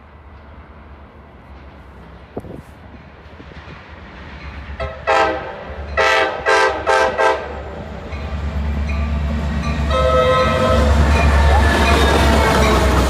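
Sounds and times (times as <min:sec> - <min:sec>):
locomotive rumble: 0:00.0 - 0:13.0
train air horn blasts: 0:04.8 - 0:07.6, 0:09.9 - 0:13.0
held horn tone: 0:09.9 - 0:13.0.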